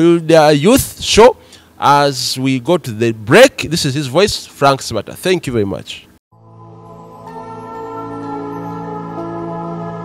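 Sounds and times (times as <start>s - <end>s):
ambient music with held chords: 6.3s - 10.0s.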